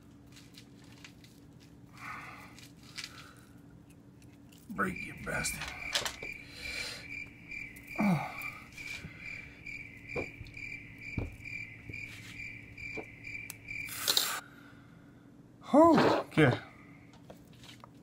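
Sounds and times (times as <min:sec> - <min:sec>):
cricket chirping: 0:04.7 - 0:14.4.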